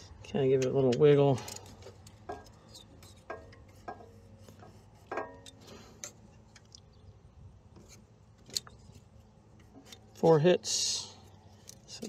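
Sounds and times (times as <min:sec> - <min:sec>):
small metallic clicks and taps: 0:00.4 - 0:07.0, 0:07.8 - 0:09.0, 0:11.6 - 0:12.0.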